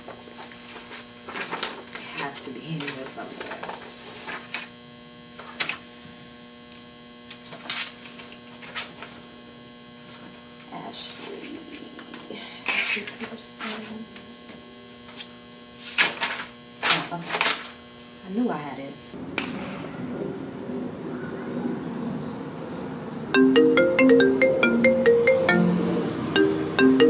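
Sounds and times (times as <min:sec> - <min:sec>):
electrical hum: 0:00.0 - 0:27.0
paper sheets rustling: 0:00.1 - 0:04.7, 0:05.4 - 0:05.8, 0:15.8 - 0:17.7
binder pages flipping: 0:00.4 - 0:04.7.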